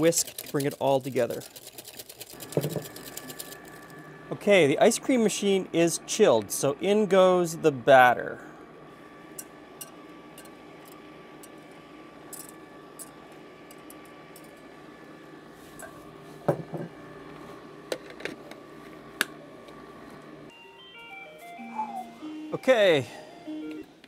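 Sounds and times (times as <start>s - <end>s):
whisk clinking against glass jug: 0.0s - 3.5s
ice cream maker humming: 0.0s - 24.0s.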